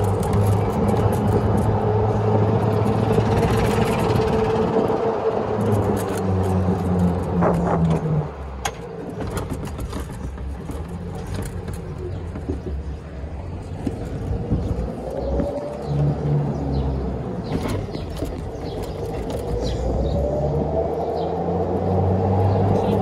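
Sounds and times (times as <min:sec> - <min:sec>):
clicks and rattles: 0:00.0 - 0:01.8, 0:02.6 - 0:15.6, 0:17.4 - 0:19.8
golf cart driving: 0:00.0 - 0:23.0.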